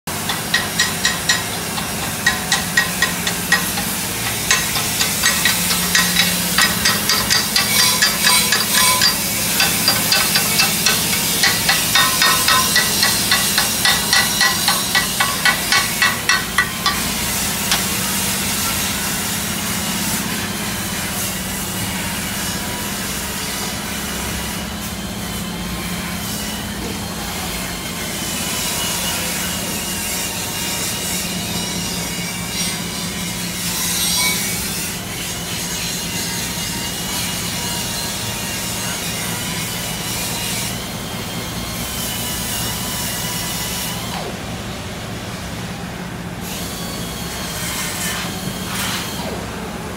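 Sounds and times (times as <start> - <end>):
hand tool scraping steel: 0.1 - 18.5.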